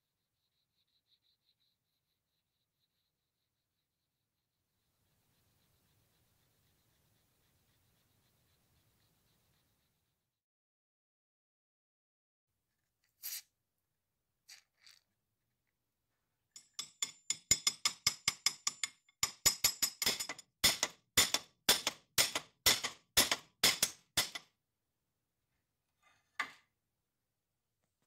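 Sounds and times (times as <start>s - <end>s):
hammer striking metal: 16.8s - 24.5s.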